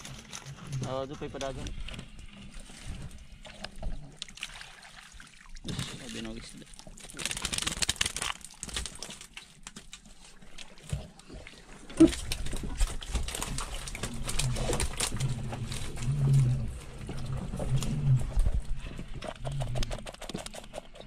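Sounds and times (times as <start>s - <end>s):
wet clicks and slaps of fish: 7.0s - 10.0s
pufferfish grunting pulses: 13.9s - 20.2s.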